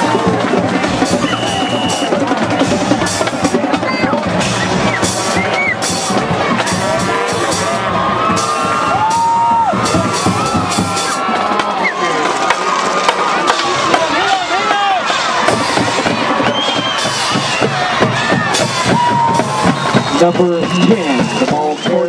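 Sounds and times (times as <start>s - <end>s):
drums beating: 0.0s - 22.0s
stadium crowd chatter and shouts: 0.0s - 22.0s
short high whistle: 1.2s - 2.1s.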